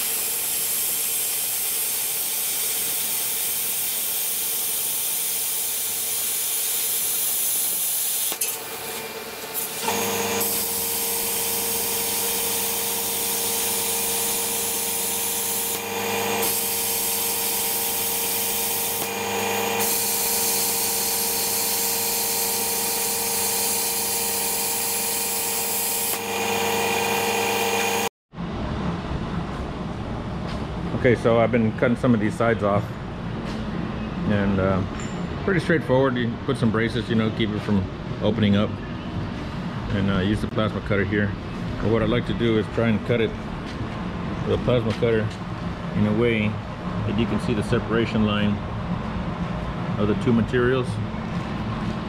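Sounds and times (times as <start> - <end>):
plasma cutter arc hissing: 0.0 - 28.1
steady hum: 0.0 - 32.4.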